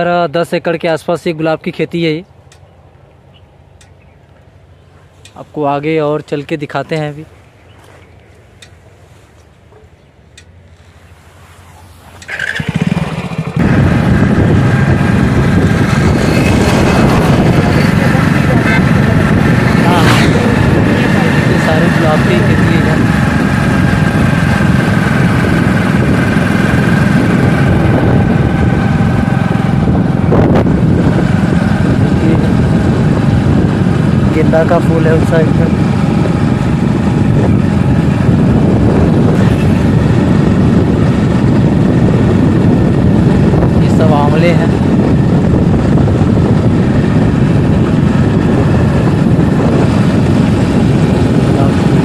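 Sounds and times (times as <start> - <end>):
wind buffeting microphone: 2.6 - 52.0
motorcycle engine running: 10.8 - 52.0
rush of noise: 10.9 - 52.0.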